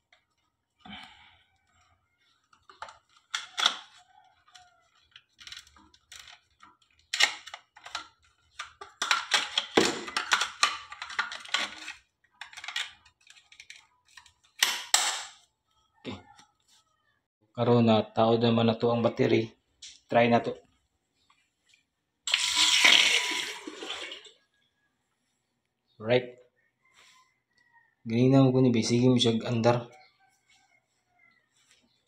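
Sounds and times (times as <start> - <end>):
hard plastic clicking and rattling: 2.6 - 15.2.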